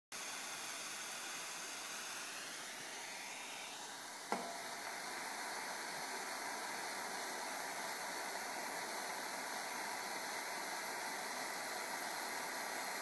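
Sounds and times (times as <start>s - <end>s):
blow torch hissing: 0.2s - 13.0s.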